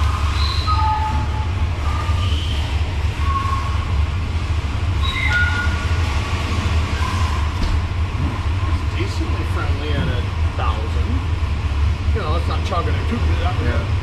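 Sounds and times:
engine rumbling on dyno: 0.0 - 14.0
short high squeaks: 0.1 - 3.8, 5.0 - 6.0.

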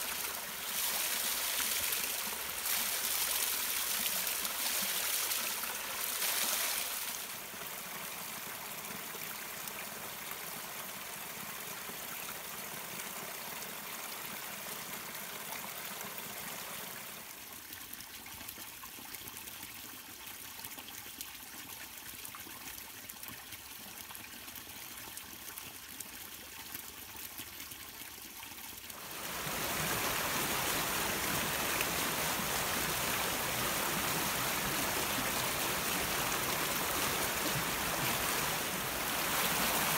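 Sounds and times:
stream rushing over rocks: 0.0 - 11.9, 28.9 - 39.9
brook trickling over stones: 0.0 - 39.9.

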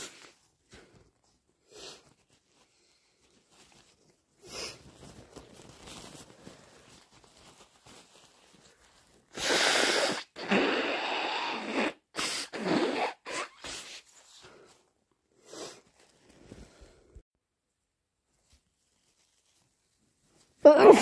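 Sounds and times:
person blowing nose: 9.3 - 14.4, 15.4 - 15.8.

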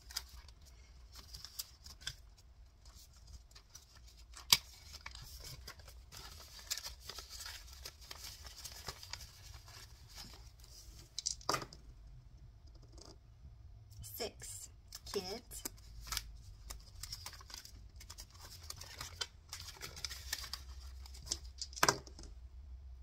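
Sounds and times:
plastic pouches rustling: 0.0 - 11.4, 15.8 - 21.8
paper bills rustling: 0.1 - 10.9, 15.7 - 21.5.

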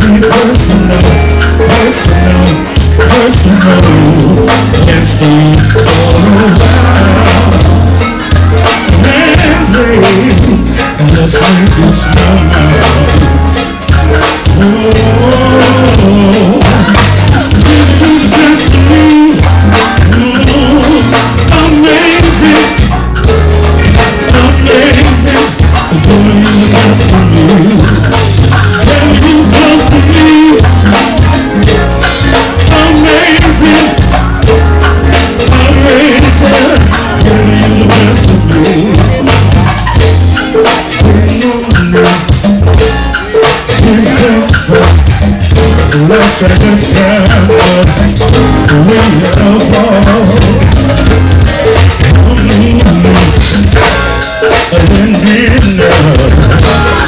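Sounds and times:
bass beat: 0.0 - 57.0
congas and drums groove: 0.0 - 57.0
trombone and trumpet playing: 0.0 - 57.0.

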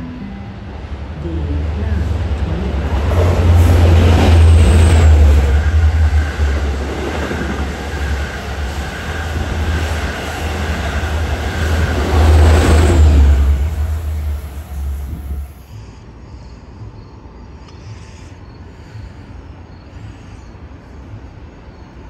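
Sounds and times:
train wheels rumbling on rails: 0.0 - 15.9
high train whine: 0.0 - 17.7.

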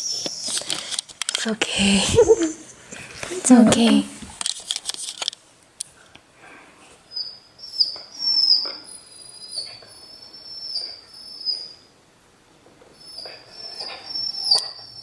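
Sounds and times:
puppy whining: 7.2 - 11.9, 12.9 - 15.0.

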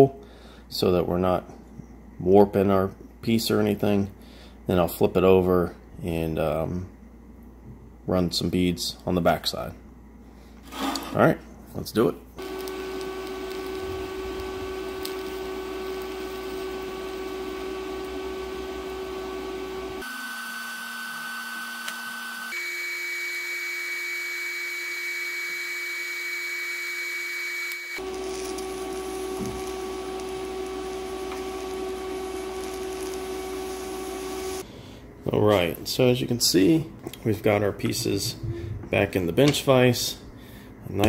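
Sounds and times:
welding arc hissing and humming: 12.4 - 34.6.

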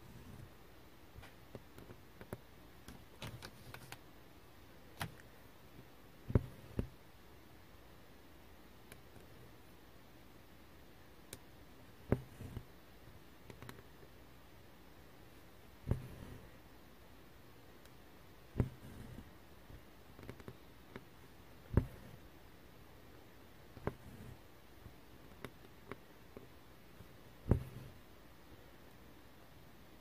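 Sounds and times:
needle piercing fabric: 18.5 - 19.3, 27.4 - 28.0.

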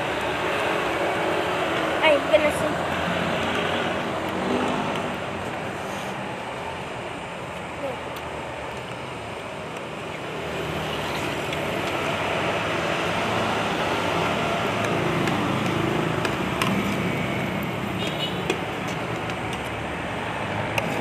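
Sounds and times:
road traffic noise: 0.0 - 21.0.

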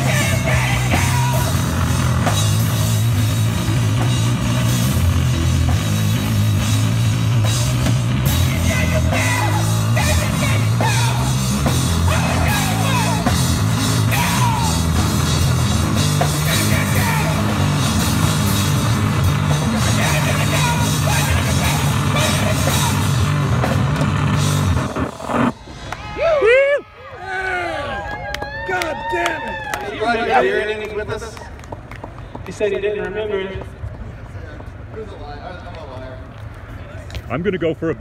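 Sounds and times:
drum kit with cymbals: 0.0 - 25.5
distorted electric guitar riff: 0.0 - 25.9.

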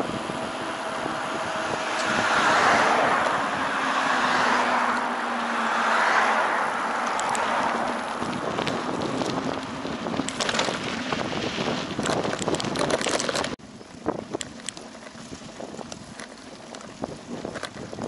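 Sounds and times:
tyres on dirt track: 0.0 - 18.0
wind buffeting microphone: 0.0 - 18.0
bicycle rattling clicks: 6.9 - 18.0.

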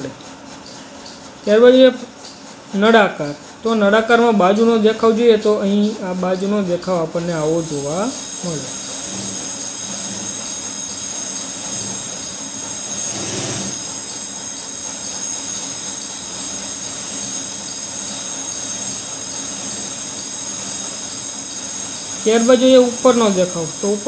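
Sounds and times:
high-pitched electrical whine: 4.5 - 24.0
steady background hiss: 15.4 - 24.0.

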